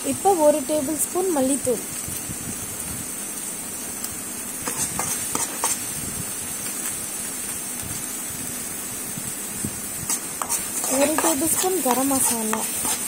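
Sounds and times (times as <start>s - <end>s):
paste sizzling in a pan: 0.0s - 13.0s
spoon scraping and knocking pan: 4.6s - 5.8s, 10.0s - 13.0s.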